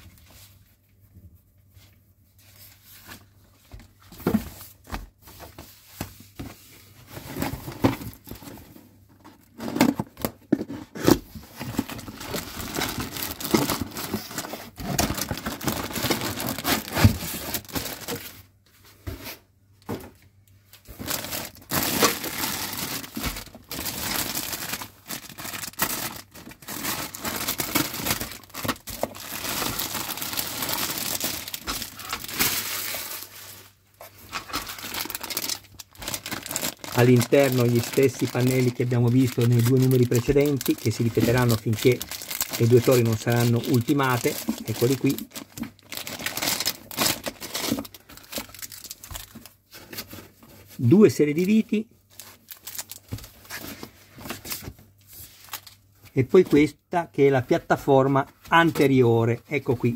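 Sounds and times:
plastic bags crinkling: 11.5 - 18.5, 20.7 - 56.0.

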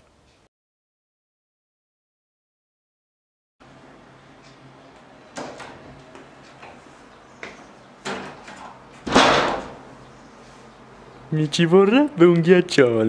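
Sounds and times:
bang with a rattle: 9.0 - 9.8.

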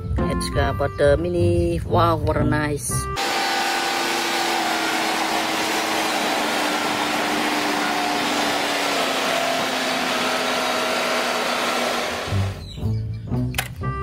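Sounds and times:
excavator engine running: 3.2 - 12.8.

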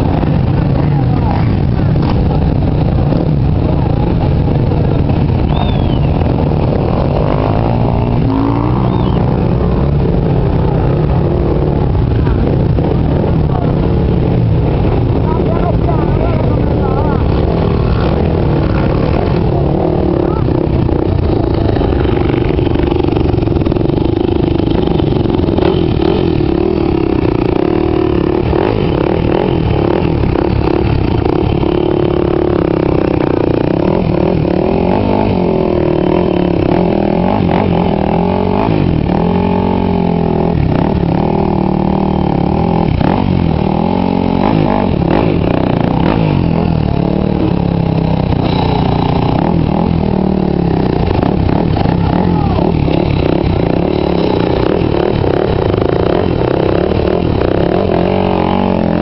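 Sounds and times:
dirt bike engines idling and revving: 0.0 - 59.0.

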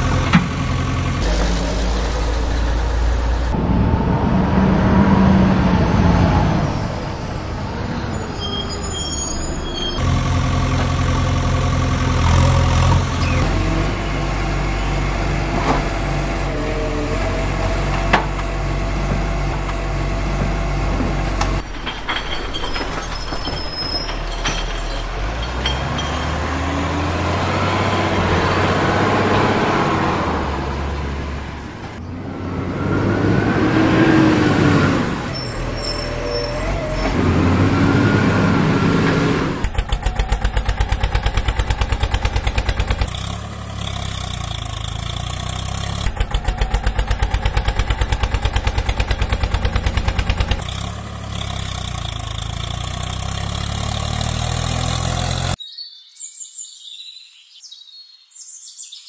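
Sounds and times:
fast diesel chug: 0.0 - 3.6, 10.0 - 15.4, 39.4 - 54.9
truck engine revving: 0.0 - 21.7, 24.4 - 55.6.

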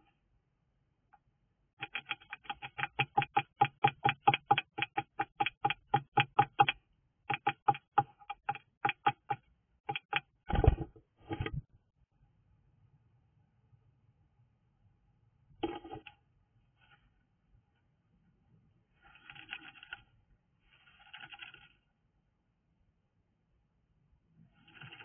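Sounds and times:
rustling: 16.7 - 18.0, 18.8 - 21.9.

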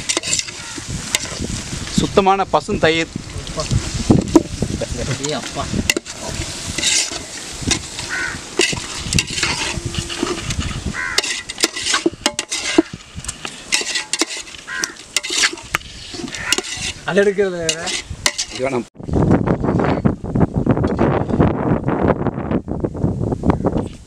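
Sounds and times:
ladle scraping metal pot: 0.0 - 1.7, 3.3 - 18.9.

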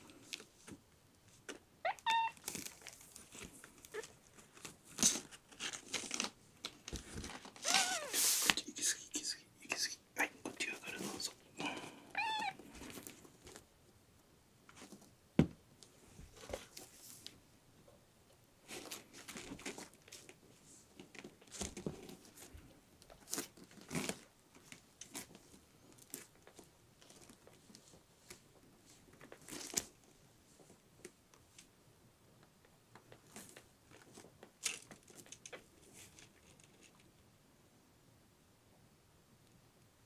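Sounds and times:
paper rustling and crinkling: 2.4 - 8.6, 18.7 - 30.0.

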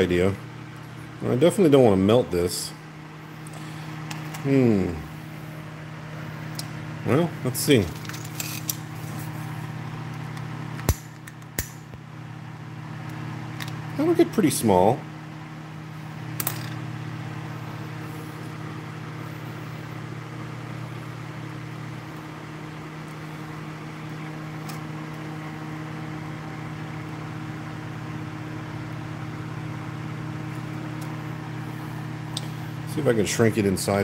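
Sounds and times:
small fan motor humming: 0.0 - 34.0.

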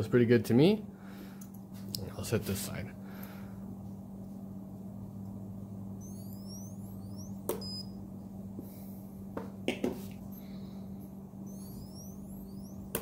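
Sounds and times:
low steady hum: 0.0 - 13.0
short high beep: 6.0 - 8.0, 11.5 - 12.8.

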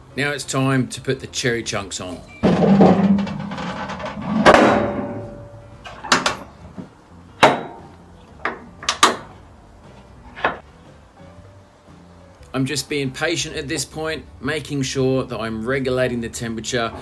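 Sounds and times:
loud metal clang: 2.3 - 6.5, 7.4 - 7.9.

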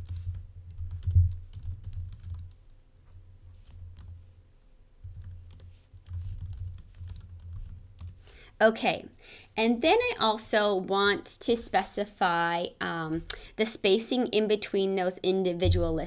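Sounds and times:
computer keyboard typing: 0.0 - 2.7, 3.6 - 4.2, 5.0 - 8.2.

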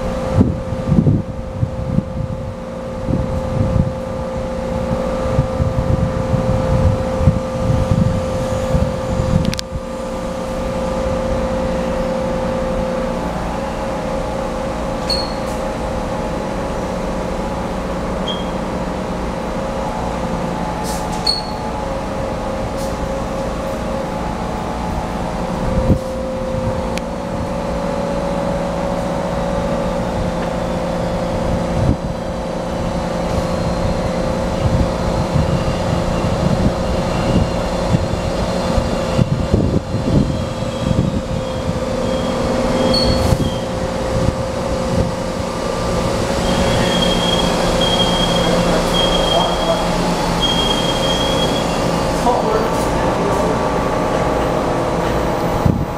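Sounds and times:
train running into station: 0.0 - 55.9
brakes squealing: 15.0 - 15.7, 35.3 - 43.9, 45.7 - 55.8.

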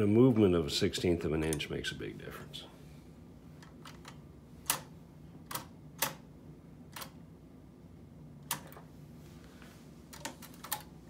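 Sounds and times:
faint low hum: 0.0 - 11.0
typewriter mechanism clicks: 3.6 - 6.2, 6.9 - 7.2, 8.4 - 8.8, 10.1 - 10.9.

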